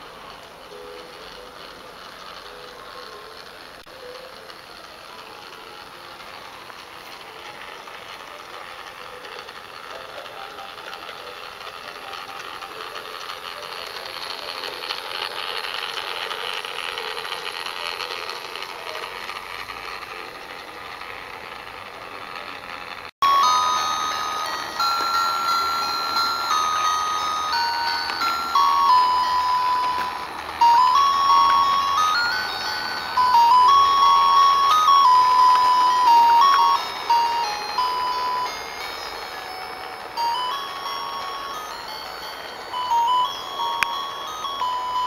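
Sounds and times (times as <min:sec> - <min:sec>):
toy train motor whirring: 0:00.0 - 0:45.0
bell-like tune: 0:23.2 - 0:45.0.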